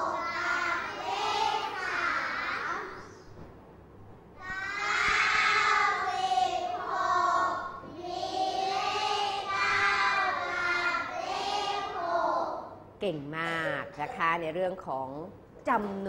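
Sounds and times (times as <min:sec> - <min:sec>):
children chanting together: 0:00.0 - 0:03.0, 0:04.4 - 0:12.8.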